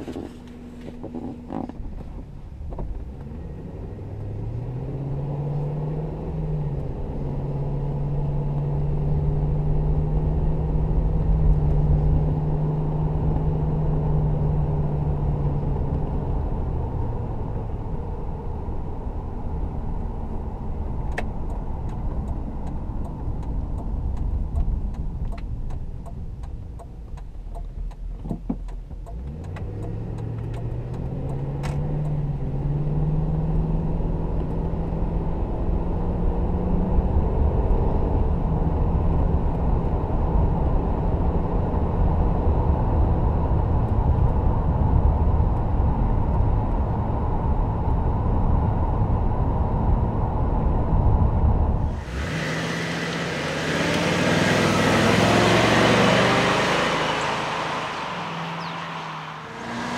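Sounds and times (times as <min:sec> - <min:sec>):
car engine accelerating: 0:00.0 - 0:59.9
road noise: 0:00.0 - 0:59.9.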